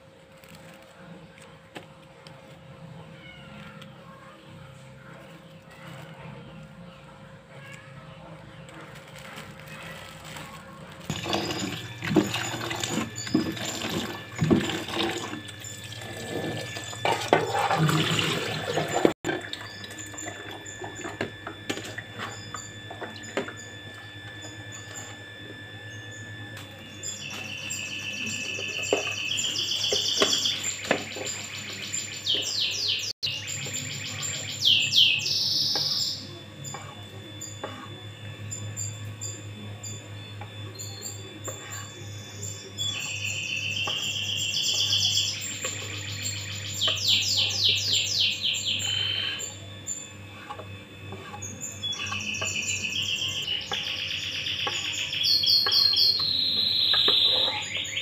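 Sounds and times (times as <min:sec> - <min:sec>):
plastic bag crinkling: 0:00.2 - 0:02.7, 0:08.7 - 0:11.3
tap water running into bowl: 0:11.1 - 0:21.8
birds chirping and trilling: 0:18.2 - 0:58.0.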